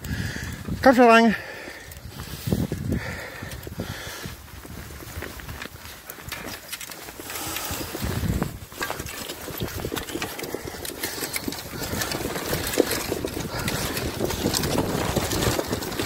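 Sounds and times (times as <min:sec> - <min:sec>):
cart wheels rattling over dirt: 0:00.0 - 0:16.0.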